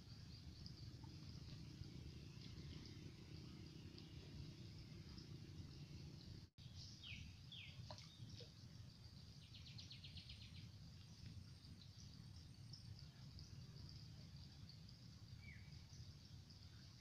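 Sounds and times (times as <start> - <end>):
small birds chirping: 0.2 - 17.0
high insect hiss: 8.4 - 17.0.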